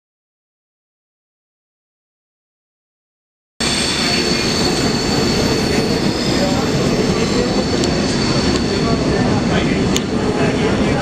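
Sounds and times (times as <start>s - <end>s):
streetcar rumbling with high whine: 3.6s - 11.0s.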